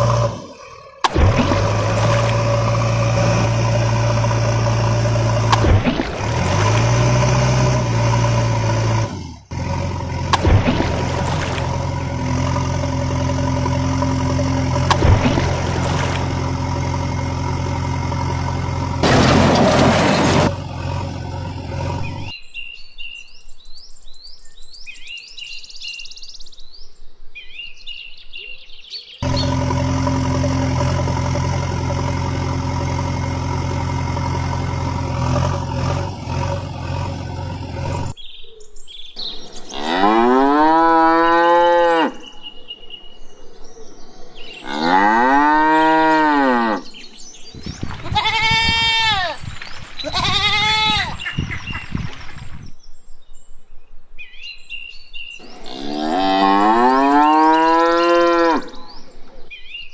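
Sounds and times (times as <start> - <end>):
cattle mooing: 0.0 - 22.3, 29.2 - 38.2, 39.6 - 42.2, 44.6 - 46.9, 55.4 - 58.7
steady engine: 0.0 - 22.3, 29.2 - 38.2
birds chirping: 20.5 - 59.9.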